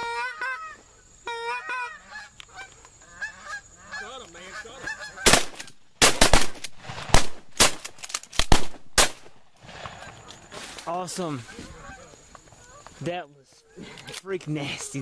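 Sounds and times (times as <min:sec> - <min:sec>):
geese honking: 0:00.0 - 0:05.8, 0:09.9 - 0:14.2
shotgun blasts: 0:05.2 - 0:09.4.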